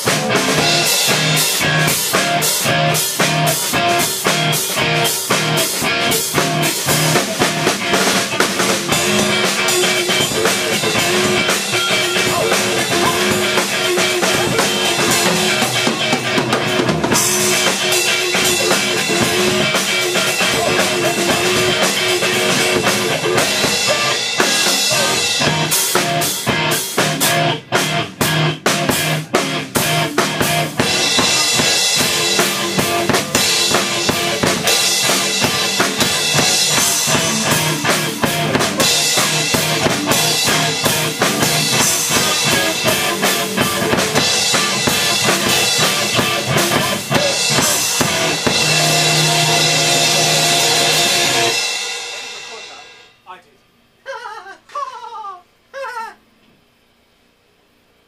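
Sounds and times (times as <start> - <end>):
bass drum and snare: 0.0 - 52.8
electric guitar: 0.0 - 53.0
rock band playing loud: 0.0 - 53.4.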